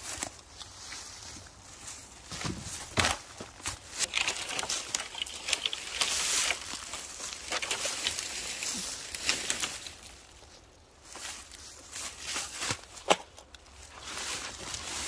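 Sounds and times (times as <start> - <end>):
boots crunching through dry leaves: 5.7 - 15.0.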